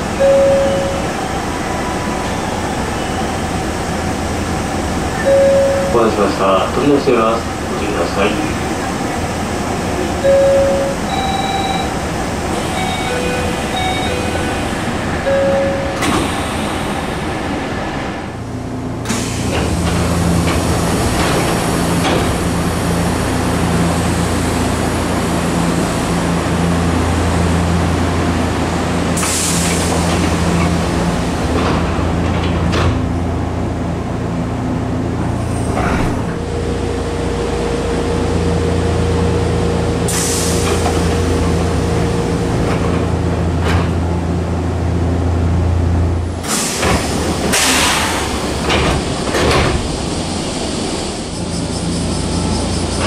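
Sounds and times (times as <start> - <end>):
train car electrical hum: 0.0 - 53.0
steady high tone: 0.1 - 2.0, 5.2 - 6.5, 10.2 - 16.1
air hiss of train doors: 15.9 - 18.2, 19.0 - 22.6, 29.1 - 30.8, 40.0 - 42.0, 46.4 - 53.0.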